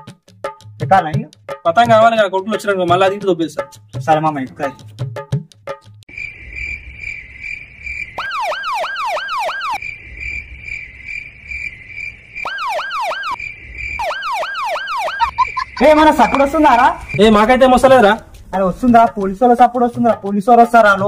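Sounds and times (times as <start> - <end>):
insect chirring: 6.1 - 19.8
police siren wailing: 8.2 - 9.8, 12.4 - 13.4, 14.0 - 18.0.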